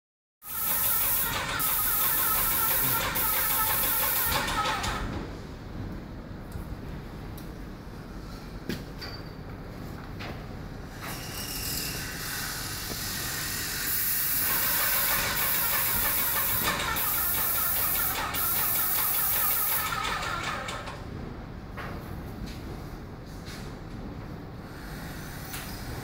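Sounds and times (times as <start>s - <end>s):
paint sprayer hissing: 0.4s - 5.1s, 13.7s - 20.9s.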